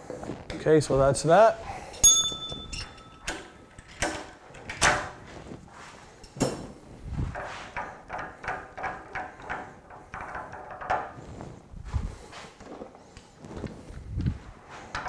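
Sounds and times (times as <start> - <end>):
ringing metal tone: 1.9 - 3.7
metal clinks and clunks: 1.9 - 5.1.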